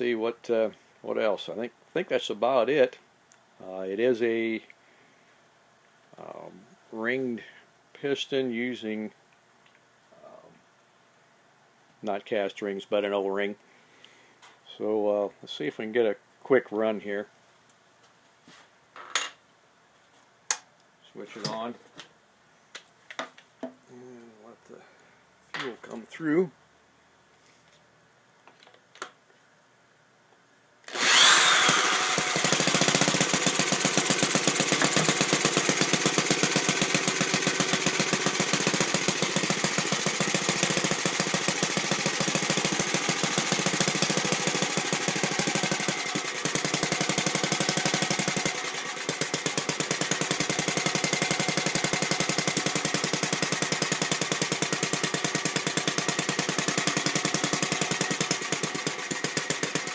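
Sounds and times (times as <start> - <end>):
handheld electric starter: 30.9 - 59.9
model engine exhaust beat: 31.0 - 59.9.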